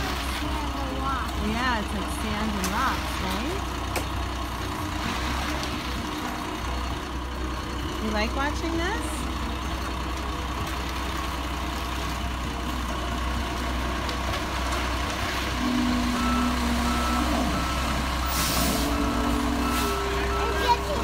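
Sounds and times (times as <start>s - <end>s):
diesel truck engine running: 0.0s - 21.0s
reversing alarm beeps: 15.6s - 21.0s.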